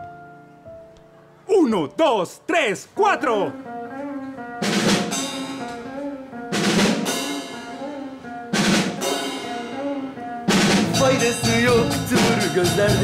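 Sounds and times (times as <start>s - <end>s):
keyboard notes: 0.0s - 13.0s
person counting in: 1.5s - 3.6s
drums: 4.6s - 13.0s.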